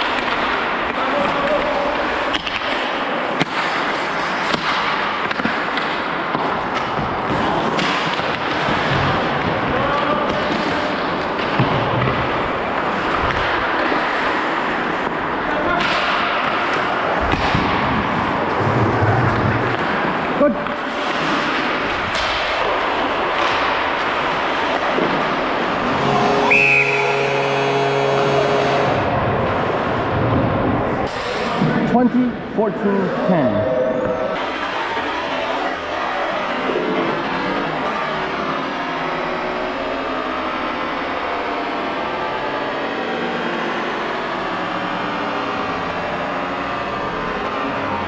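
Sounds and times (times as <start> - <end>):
hockey sticks and puck clacking: 0.0 - 18.5, 19.4 - 26.5.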